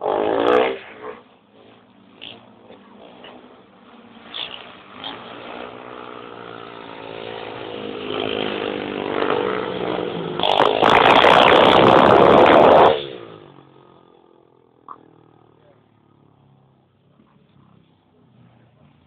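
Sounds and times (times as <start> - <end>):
racing motorcycle engine high revs: 0.0 - 19.0.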